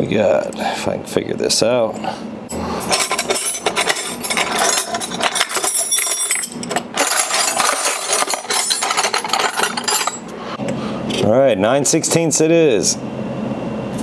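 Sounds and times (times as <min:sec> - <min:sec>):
metal wrenches clinking: 0:02.9 - 0:10.3.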